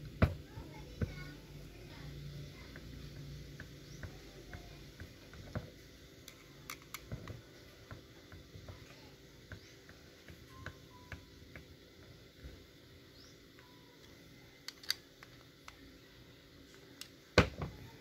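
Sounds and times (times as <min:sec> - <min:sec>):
small parts and tools clicking: 0:02.6 - 0:08.8, 0:13.5 - 0:15.9.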